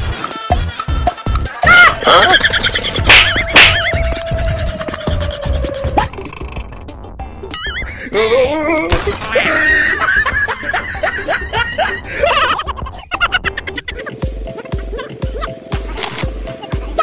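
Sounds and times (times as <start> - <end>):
comedy background music: 0.0 - 17.0
warbling cartoon sound effects: 1.5 - 8.0
laughter: 2.1 - 3.1, 4.2 - 5.9, 9.0 - 15.6.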